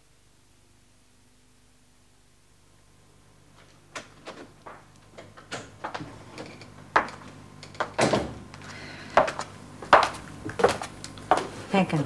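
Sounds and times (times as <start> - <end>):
door opening thud: 8.0 - 8.4.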